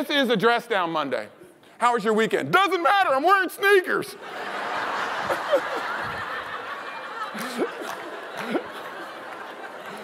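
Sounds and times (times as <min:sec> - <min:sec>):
audience laughing: 0:04.2 - 0:10.0.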